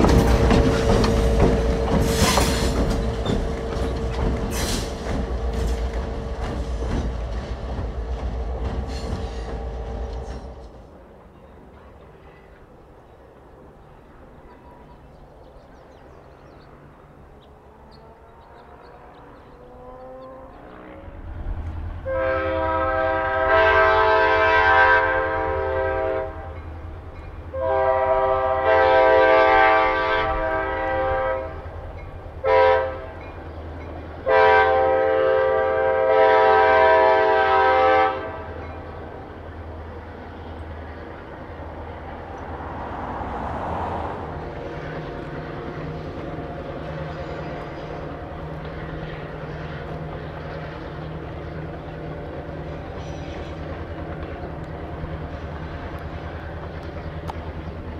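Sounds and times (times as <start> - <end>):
locomotive air horn blasts: 22.0 - 26.6, 27.5 - 31.8, 32.4 - 33.2, 34.2 - 38.6.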